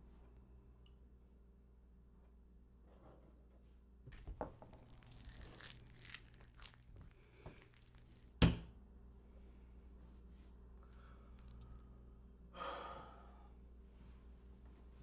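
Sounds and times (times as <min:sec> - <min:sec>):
crinkling rustling: 0:04.1 - 0:08.4.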